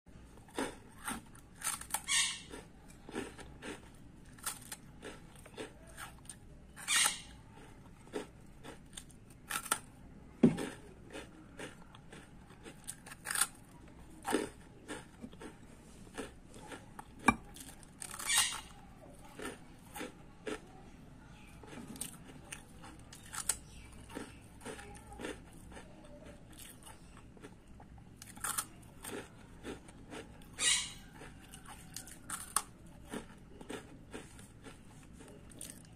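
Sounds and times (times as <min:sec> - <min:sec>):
biscuits crunching while chewed: 0:00.2 - 0:35.9.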